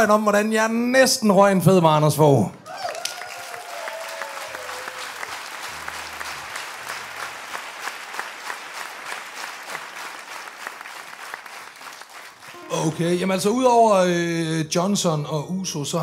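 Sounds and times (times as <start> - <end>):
audience applauding: 2.7 - 13.4.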